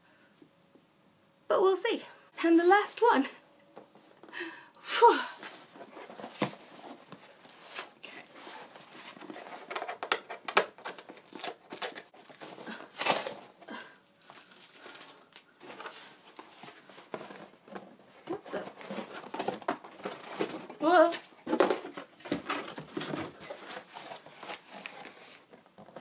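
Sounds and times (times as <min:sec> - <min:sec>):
cardboard box tearing and crinkling: 0:07.6 - 0:13.6, 0:18.3 - 0:25.5.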